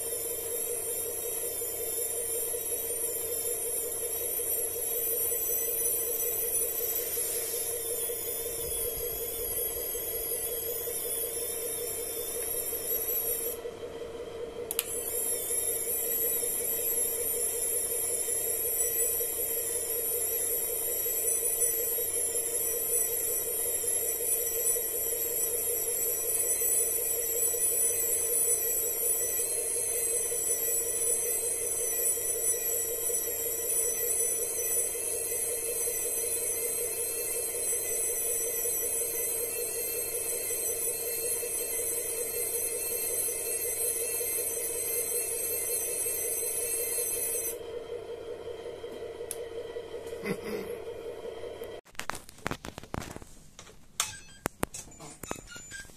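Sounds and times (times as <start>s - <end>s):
motor whine and hiss: 0.0s - 20.8s.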